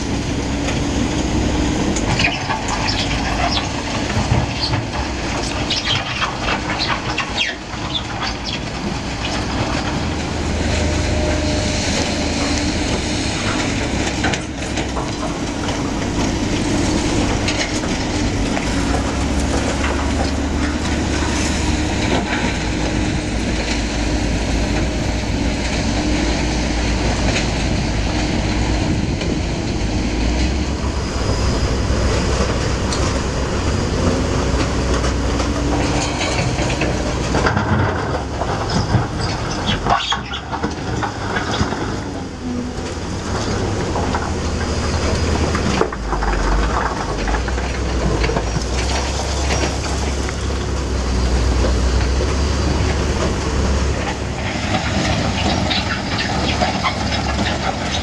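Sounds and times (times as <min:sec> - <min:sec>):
crusher machine running: 0:00.0 - 0:58.0
excavator engines working: 0:00.0 - 0:58.0
concrete rattling and crunching: 0:30.4 - 0:58.0.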